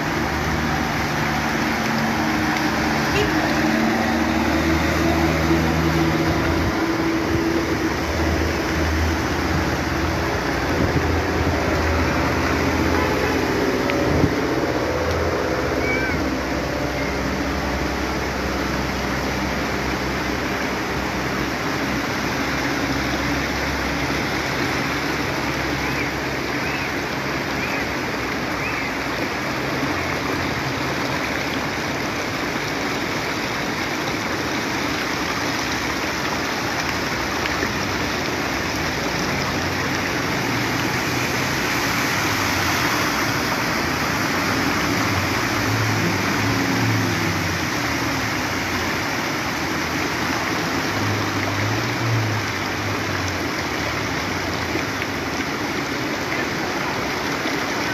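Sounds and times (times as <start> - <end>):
floodwater rushing: 0.0 - 57.9.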